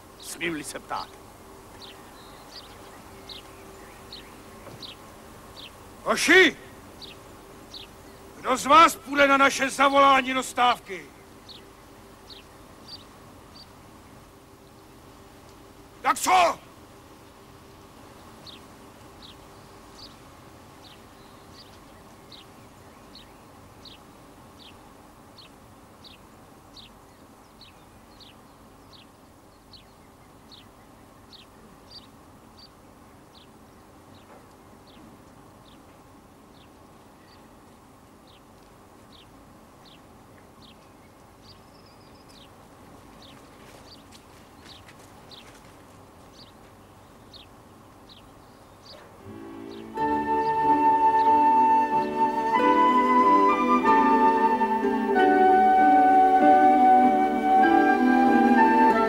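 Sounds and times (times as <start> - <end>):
faint steady hum: 0.0 - 59.0
small bird chirping: 1.8 - 5.8, 7.0 - 8.3, 11.2 - 13.8, 18.2 - 24.8, 25.4 - 33.5, 39.1 - 45.7, 46.3 - 50.0.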